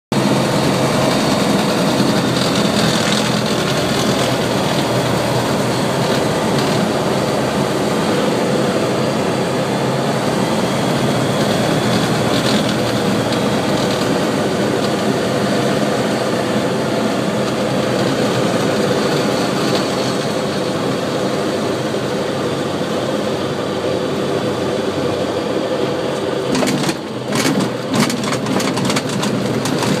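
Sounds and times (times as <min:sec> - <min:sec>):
light aircraft engine and propeller: 0:00.1 - 0:30.0
wheels bumping and rattling on grass: 0:00.2 - 0:07.5, 0:26.5 - 0:30.0.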